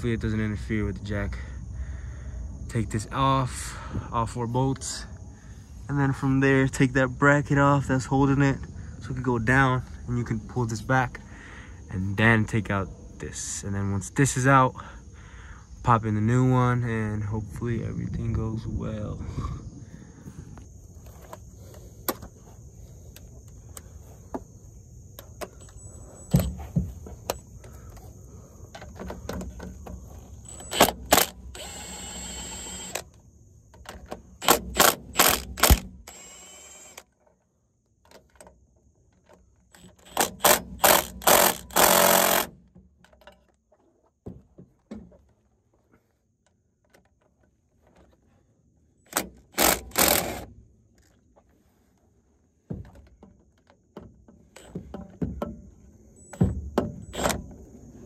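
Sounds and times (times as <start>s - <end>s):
ratchet wrench clicking: 34.4s - 37.0s, 39.8s - 42.5s, 49.1s - 50.5s.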